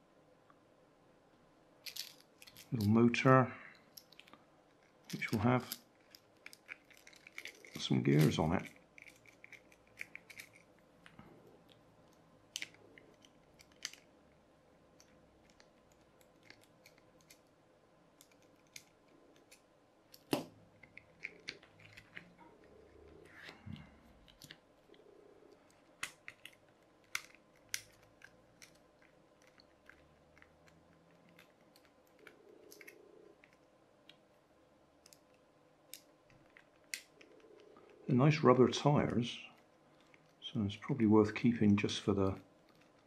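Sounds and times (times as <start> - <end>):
plastic parts clicking: 3.9 - 11.2, 12.1 - 14.1.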